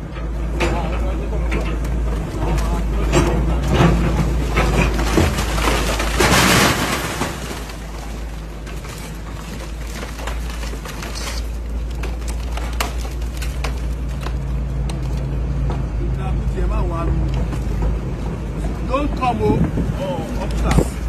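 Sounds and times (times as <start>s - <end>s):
diesel engine running: 0.0s - 21.0s
masonry crashing and rubble falling: 0.2s - 16.0s.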